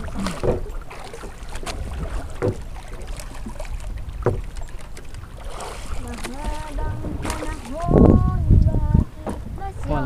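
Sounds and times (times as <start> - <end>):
wind buffeting microphone: 0.0 - 10.0
dull knocks: 0.3 - 0.7, 1.9 - 2.6, 4.2 - 4.5.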